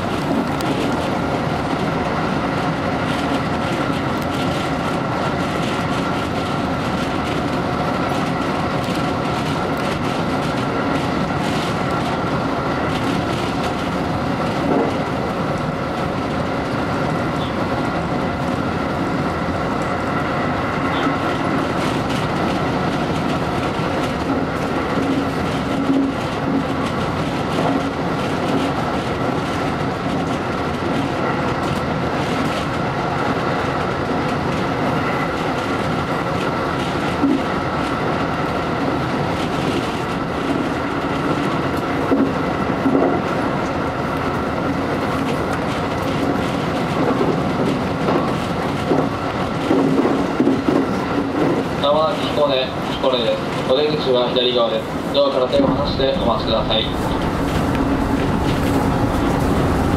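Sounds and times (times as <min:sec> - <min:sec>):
clacks over the track: 0:00.0 - 0:59.9
train wheels rumbling on rails: 0:00.0 - 0:59.9
constant high hum: 0:55.4 - 0:59.9.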